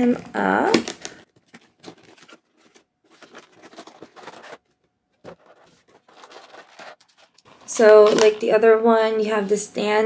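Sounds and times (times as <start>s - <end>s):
cardboard and plastic crinkling: 0.7s - 8.6s.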